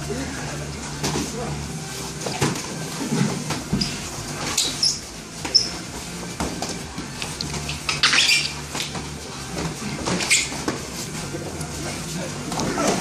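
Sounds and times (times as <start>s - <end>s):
sneakers squeaking on mats: 3.6s - 6.6s, 10.1s - 10.9s.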